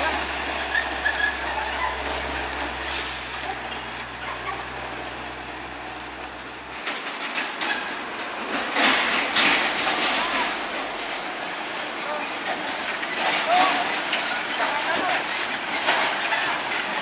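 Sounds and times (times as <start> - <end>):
truck engine humming: 0.0 - 8.4, 10.0 - 12.0
trucks and road noise: 0.0 - 17.0.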